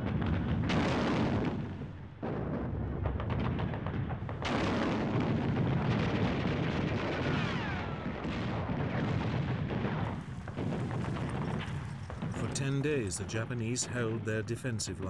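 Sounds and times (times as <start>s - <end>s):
explosions: 0.0s - 15.0s
rapid gunfire: 10.0s - 12.8s.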